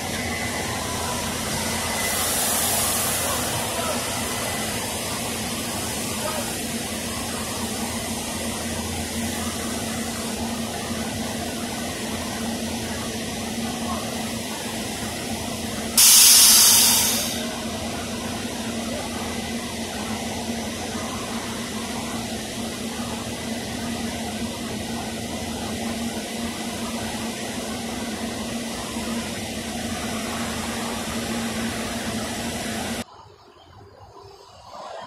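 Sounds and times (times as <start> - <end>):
railcar equipment humming: 0.0 - 35.0
air hissing: 0.6 - 6.6, 16.0 - 17.6.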